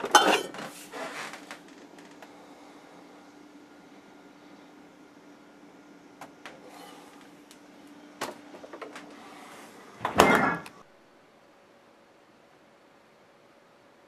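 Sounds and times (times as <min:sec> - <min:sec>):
refrigerator door thud: 0:10.0 - 0:10.6.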